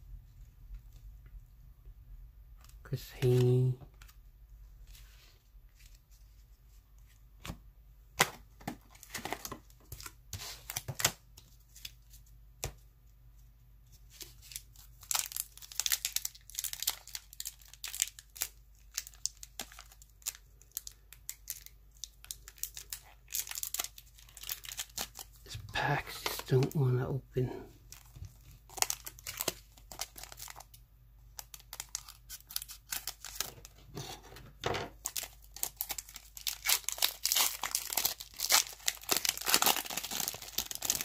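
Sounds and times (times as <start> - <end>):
card pack wrapper tearing: 14.2 - 26.6, 28.7 - 30.7, 31.4 - 33.5, 35.0 - 41.0.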